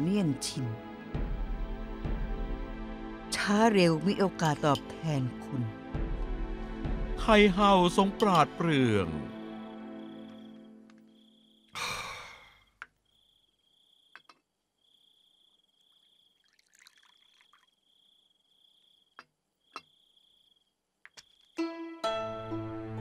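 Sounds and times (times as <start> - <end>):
tea pouring into cup: 16.4 - 17.8.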